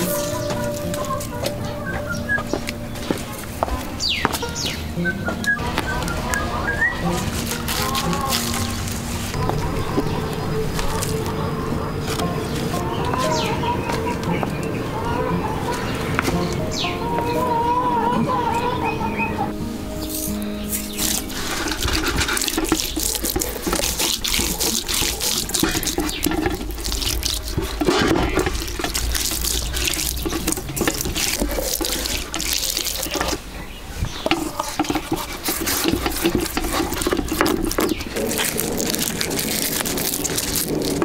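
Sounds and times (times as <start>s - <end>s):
hands rubbing wet fish: 0.0s - 17.6s, 19.8s - 41.0s
knocks and scrapes on metal tray: 20.8s - 33.4s, 34.1s - 41.0s.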